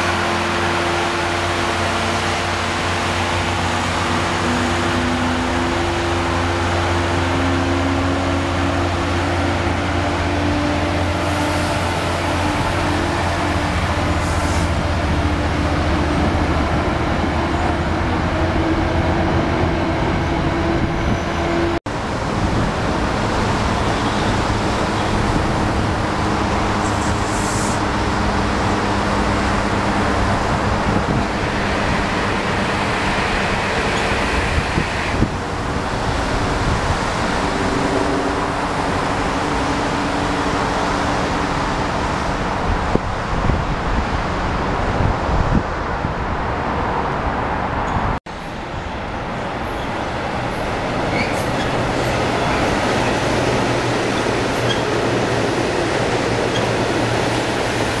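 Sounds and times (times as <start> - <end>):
diesel train engine hum: 0.0 - 58.0
electric train rumbling on tracks: 0.0 - 58.0
rolling coach noise: 0.0 - 58.0.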